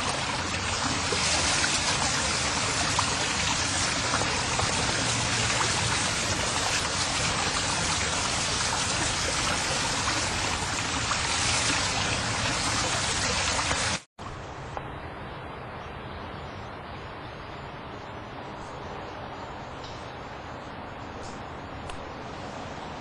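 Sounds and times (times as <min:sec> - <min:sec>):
water rushing over stone: 0:00.0 - 0:14.1.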